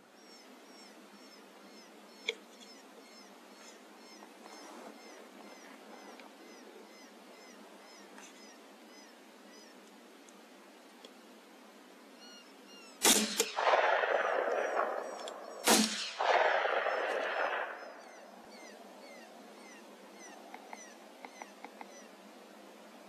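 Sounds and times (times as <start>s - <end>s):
rifle shots: 13.0s - 18.7s.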